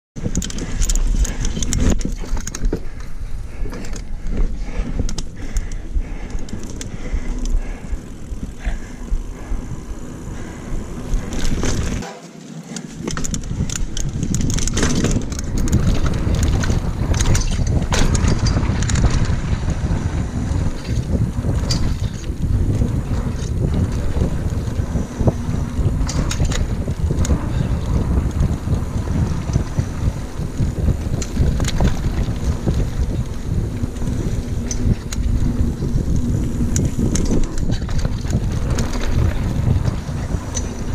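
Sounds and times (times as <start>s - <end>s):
bike clattering over bumps: 0.2s - 12.1s, 12.8s - 40.9s
tyres rumbling on dirt trail: 0.2s - 40.9s
wind on microphone: 12.9s - 40.9s.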